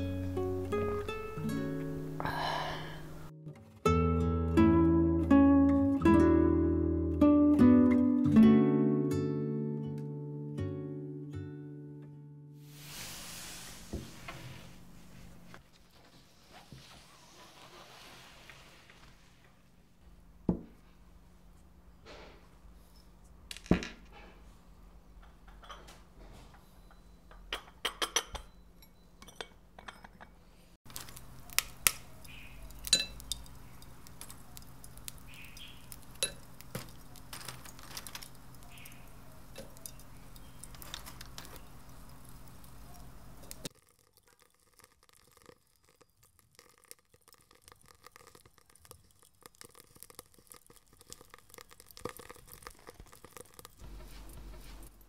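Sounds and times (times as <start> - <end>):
charcoal lumps clinking: 30.9 - 55.0
teaware clinking: 32.0 - 41.9.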